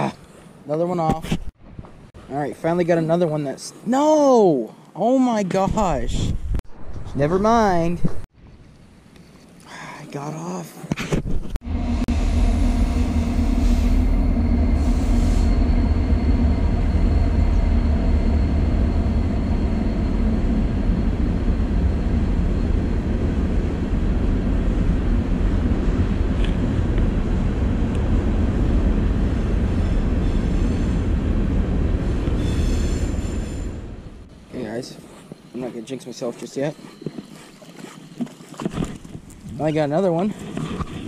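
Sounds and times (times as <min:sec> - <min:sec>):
train wheels rumbling on rails: 0:11.6 - 0:34.3
faint high whine: 0:11.6 - 0:38.5.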